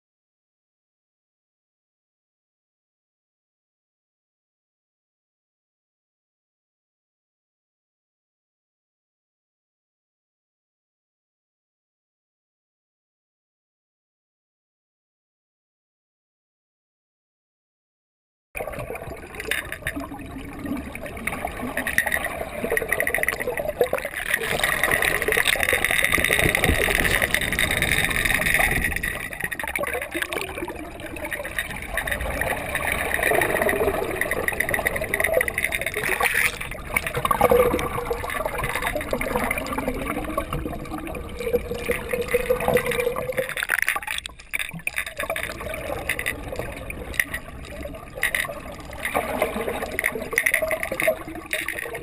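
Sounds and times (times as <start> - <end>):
water gurgling underwater: 18.6 - 52.0.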